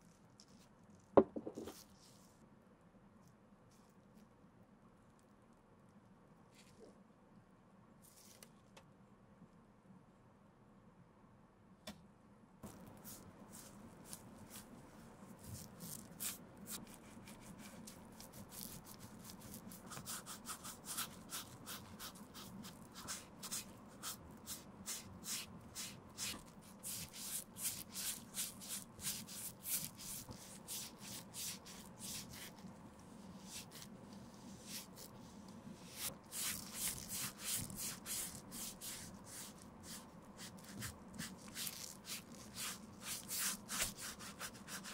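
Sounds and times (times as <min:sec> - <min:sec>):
sponge dabbing on leather: 0:12.7 - 0:44.9.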